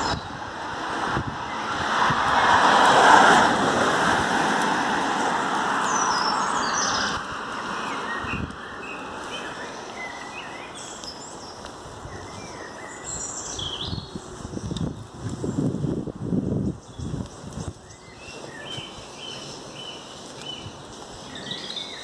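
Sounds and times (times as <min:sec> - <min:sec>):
rushing noise: 0:00.0 - 0:08.4
small birds chirping: 0:05.8 - 0:15.7, 0:16.6 - 0:22.0.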